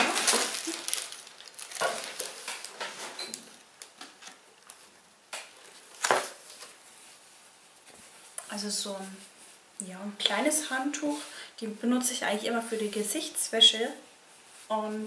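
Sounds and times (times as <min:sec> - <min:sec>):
towel rustling: 0:00.0 - 0:03.9, 0:05.6 - 0:09.7.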